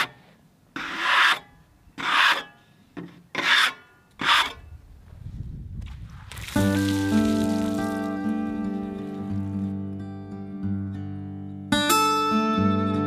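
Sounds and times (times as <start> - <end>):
brush sweeping sawdust off wood: 6.2 - 9.6.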